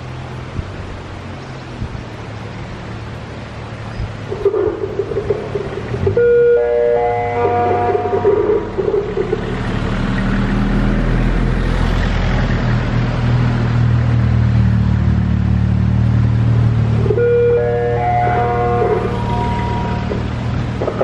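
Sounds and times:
vehicle engine humming: 0.0 - 21.0.

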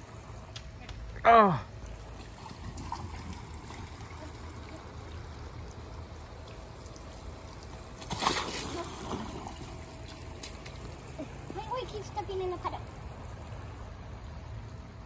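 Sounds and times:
water trickling: 1.7 - 14.8
wet splashing swoosh: 8.0 - 10.7.

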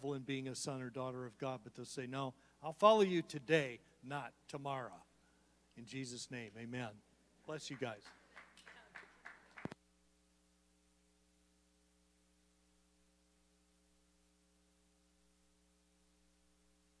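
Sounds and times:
faint mains hum: 0.0 - 17.0.

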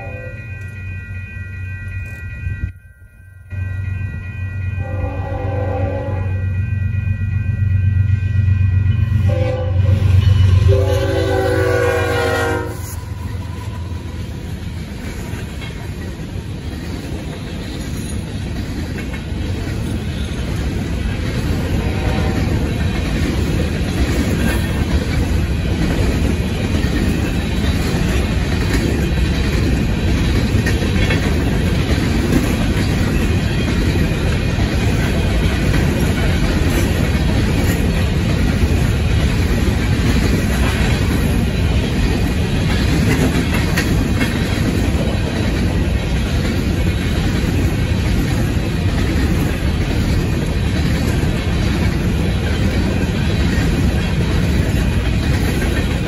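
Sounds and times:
train horn blast: 0.0 - 0.4, 4.8 - 6.6, 9.1 - 14.1, 21.7 - 22.7
crossing bell ringing: 0.0 - 25.8
diesel locomotive humming: 0.0 - 56.0
train cars clattering over crossing: 10.0 - 56.0.

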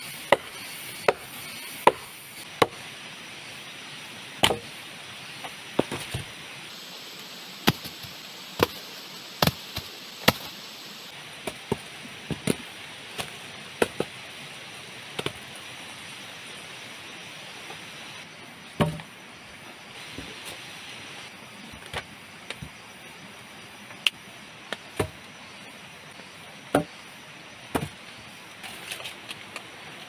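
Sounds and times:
steady hiss: 0.0 - 30.0
blade chopping wood: 0.3 - 2.8, 4.4 - 4.7, 7.6 - 8.8, 9.4 - 10.6, 18.8 - 19.1.

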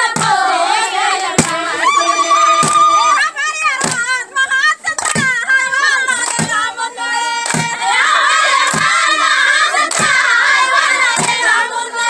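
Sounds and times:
steady drum beat: 0.0 - 3.2
women singing: 0.0 - 12.0
shrill ululating cries: 1.7 - 3.2.

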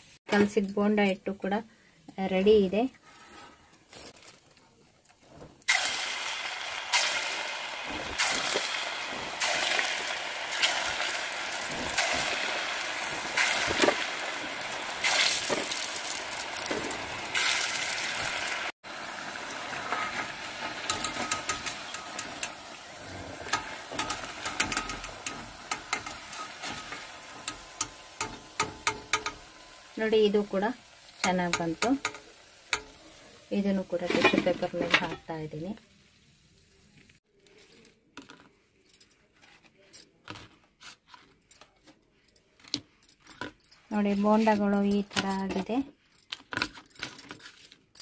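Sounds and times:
batter sizzling in hot oil: 5.7 - 37.2.

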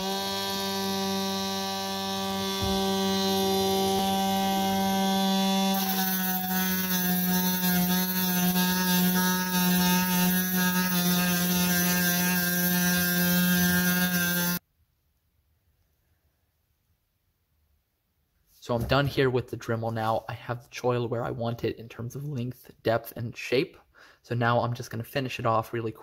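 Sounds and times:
rotary tool whining: 0.0 - 14.6
grinding stone on steel: 2.2 - 14.6.

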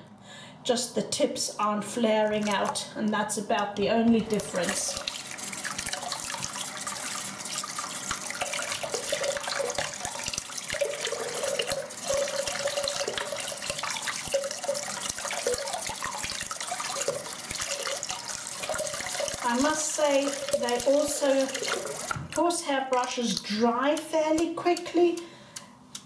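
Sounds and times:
tap water splashing through brush: 2.2 - 2.8, 4.2 - 23.5.

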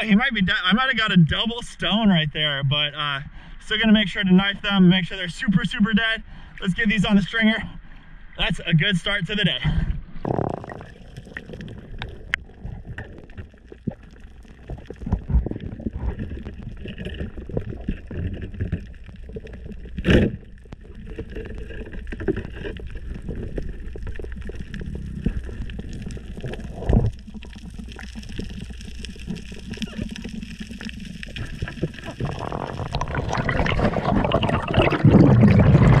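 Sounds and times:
muffled underwater rumble: 9.6 - 36.0
faint crackling: 10.1 - 36.0.

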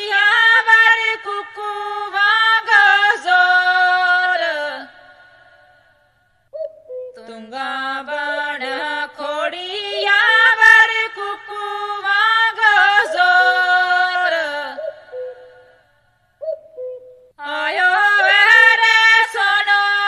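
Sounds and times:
women singing unaccompanied: 0.0 - 5.8, 7.1 - 16.0, 17.4 - 20.0.

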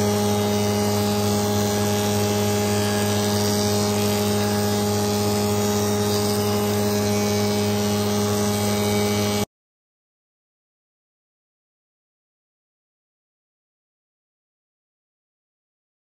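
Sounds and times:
cutter cutting wooden board: 0.0 - 9.5
motor hum: 0.0 - 9.5.

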